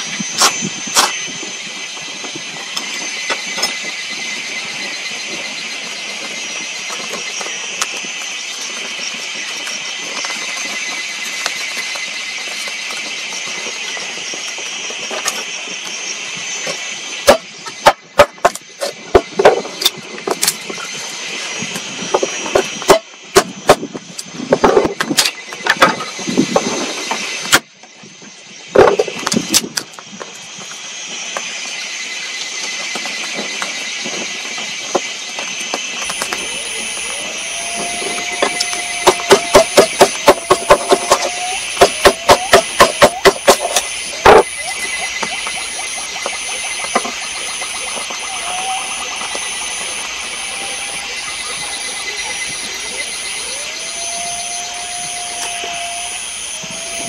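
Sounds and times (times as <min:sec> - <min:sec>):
high-pitched hiss: 0:30.3 - 0:57.0.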